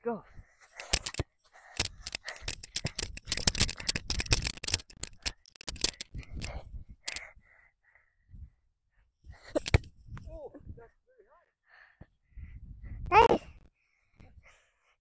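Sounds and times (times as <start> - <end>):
crackling and rustling: 0.7 - 6.5.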